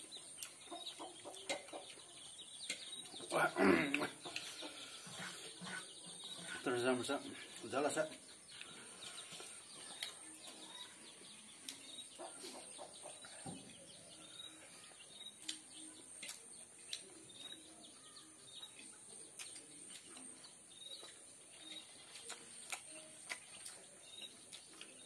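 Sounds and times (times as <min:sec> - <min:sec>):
birds chirping: 0:00.0 - 0:25.0
person chewing: 0:00.4 - 0:00.6, 0:08.5 - 0:10.4, 0:15.4 - 0:17.6, 0:18.6 - 0:25.0
lip smacks: 0:22.1 - 0:23.9.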